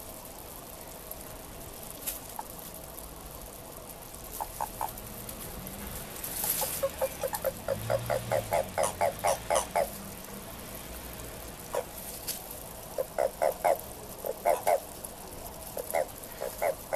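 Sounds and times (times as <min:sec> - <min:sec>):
toad croaking: 0:04.4 - 0:05.0, 0:06.4 - 0:10.1, 0:11.7 - 0:12.0, 0:12.9 - 0:14.9, 0:15.7 - 0:16.9.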